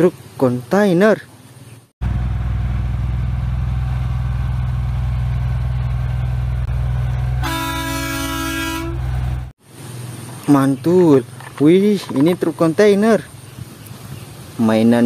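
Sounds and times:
truck diesel engine running: 2.0 - 9.5
truck horn: 6.7 - 9.5.

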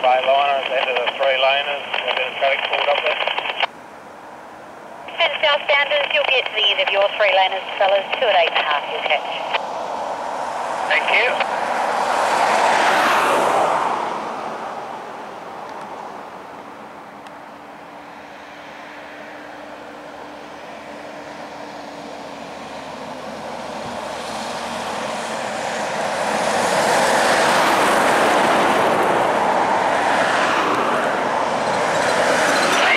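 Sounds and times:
truck engine passing: 9.6 - 32.9.

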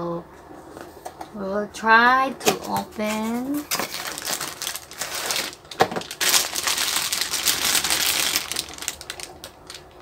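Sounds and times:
plastic bag crinkling: 2.9 - 10.0.

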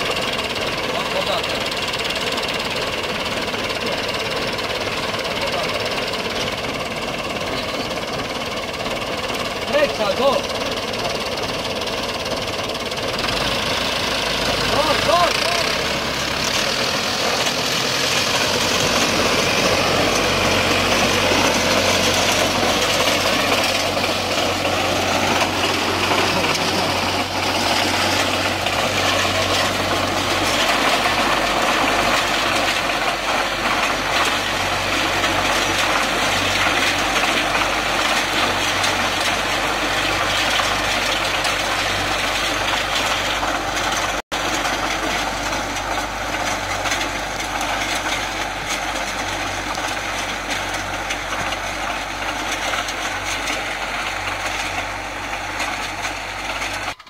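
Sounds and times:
harrow tines churning soil: 0.0 - 57.0
tractor diesel engine: 0.0 - 57.0.

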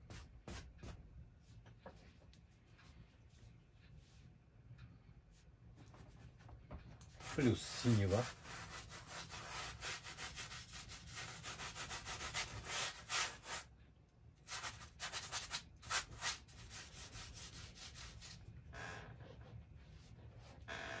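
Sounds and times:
brush scrubbing on canvas: 7.2 - 13.7.

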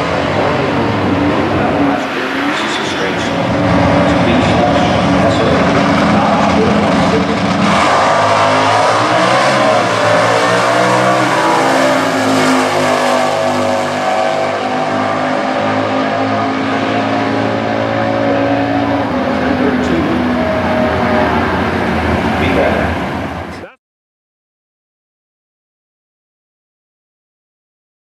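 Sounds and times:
drag race car engine running: 0.0 - 23.7.

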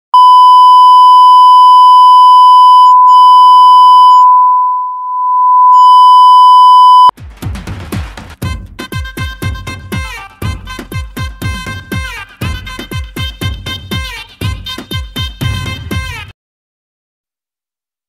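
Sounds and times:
steady test tone beep: 0.2 - 7.1.

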